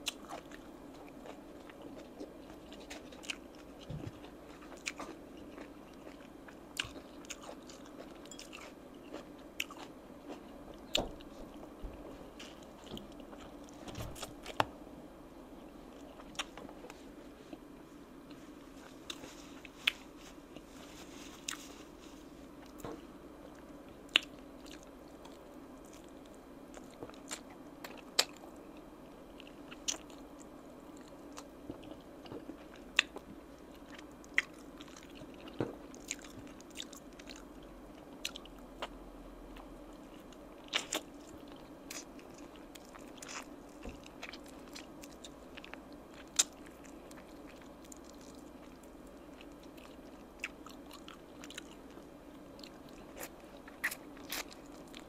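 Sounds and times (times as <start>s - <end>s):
biting and chewing: 0.0s - 14.8s, 39.6s - 55.0s
faint steady hum: 0.0s - 55.0s.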